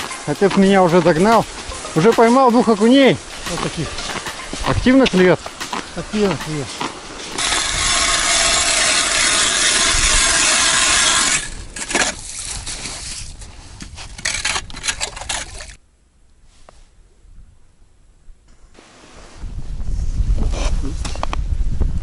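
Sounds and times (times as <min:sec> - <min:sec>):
auger scraping and knocking: 0:00.0 - 0:13.1
ice auger grinding through ice: 0:07.3 - 0:12.8.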